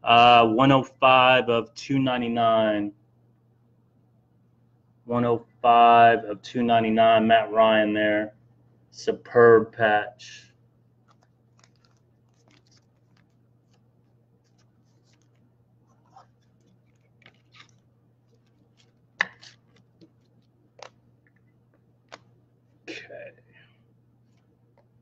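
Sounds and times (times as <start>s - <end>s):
faint steady hum: 0.0s - 25.0s
trading cards clicking and rustling: 11.0s - 22.3s.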